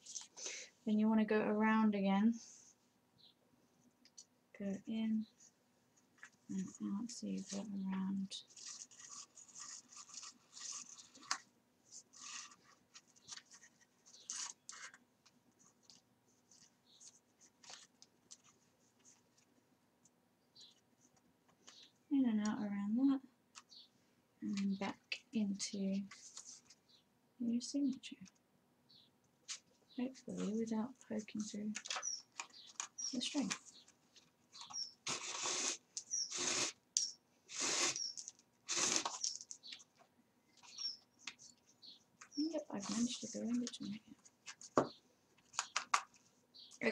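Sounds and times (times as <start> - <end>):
thread drawn through paper: 8.4 - 15.0, 26.1 - 26.8, 34.6 - 39.6.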